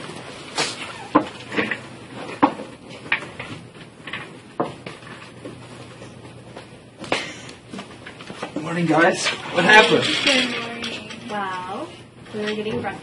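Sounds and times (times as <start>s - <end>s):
footsteps and shuffling: 0.0s - 9.6s.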